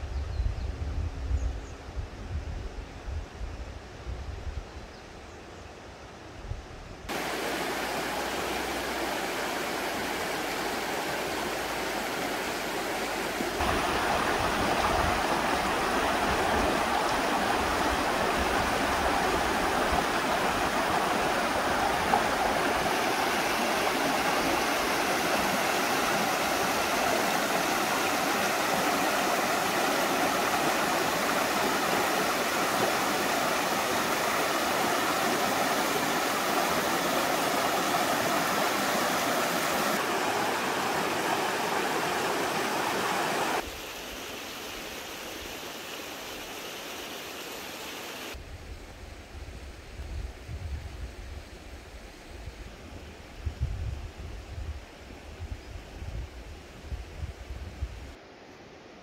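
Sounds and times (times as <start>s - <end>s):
stream rushing over rocks: 7.1s - 48.4s.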